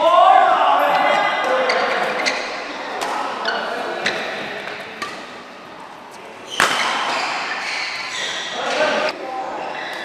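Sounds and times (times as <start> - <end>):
rackets striking shuttlecock: 4.7 - 5.4, 6.5 - 7.3.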